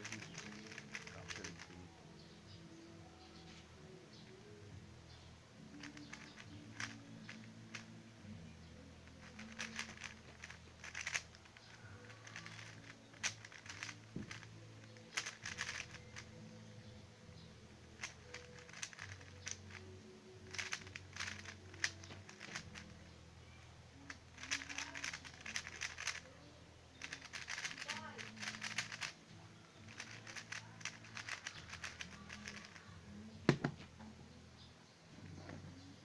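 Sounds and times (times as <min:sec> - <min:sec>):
plastic puzzle cube clicking: 0:00.0 - 0:01.8, 0:05.8 - 0:08.0, 0:09.0 - 0:16.4, 0:17.9 - 0:23.0, 0:24.1 - 0:26.3, 0:27.0 - 0:29.2, 0:29.9 - 0:32.8
faint background music: 0:00.0 - 0:36.0.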